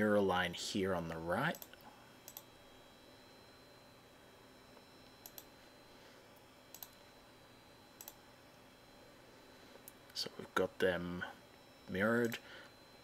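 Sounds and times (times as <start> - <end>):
faint steady hum: 0.0 - 13.0
computer mouse clicking: 1.5 - 2.5, 5.2 - 5.5, 6.7 - 7.0, 8.0 - 8.2.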